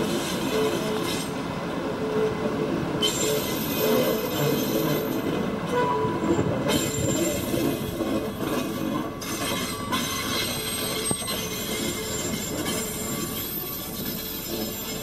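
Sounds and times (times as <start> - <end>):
diesel railcar engine running: 0.0 - 15.0
steel wheels rolling on track: 3.0 - 5.5, 6.2 - 15.0.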